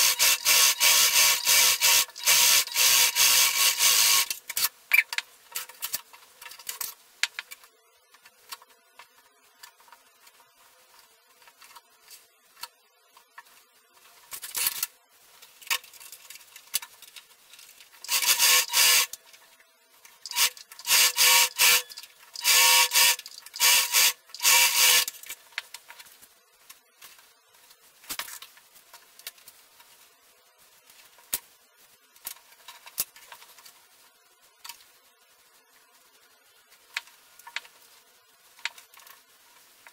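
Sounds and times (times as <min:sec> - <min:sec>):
sewing machine stitching: 0:00.0 - 0:04.3, 0:18.0 - 0:19.1, 0:20.3 - 0:25.1.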